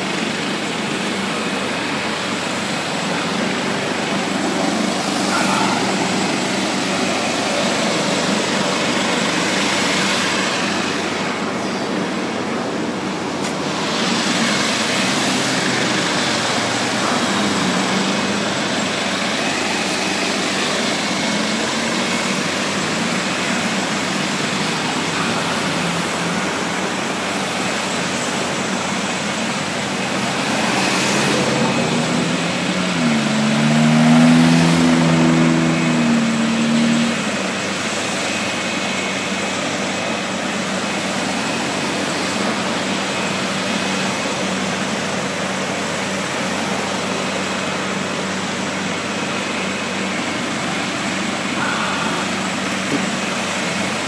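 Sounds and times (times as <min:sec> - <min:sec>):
highway traffic passing: 0:00.0 - 0:54.0
vehicle engine revving: 0:13.1 - 0:39.1.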